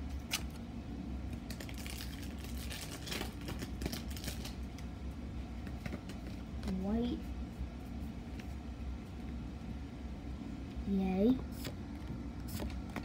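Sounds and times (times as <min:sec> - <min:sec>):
steady low hum: 0:00.0 - 0:13.0
trading cards being handled: 0:01.3 - 0:04.9
foil wrapper crinkling: 0:01.4 - 0:04.7.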